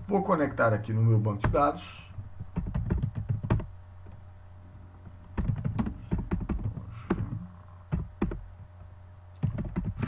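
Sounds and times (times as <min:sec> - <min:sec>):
typing on computer keyboard: 0:02.6 - 0:03.7, 0:05.4 - 0:07.2, 0:09.4 - 0:10.0.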